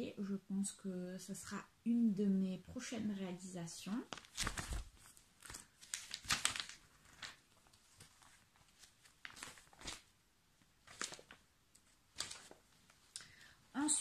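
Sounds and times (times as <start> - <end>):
magazine pages rustling: 4.0 - 13.1.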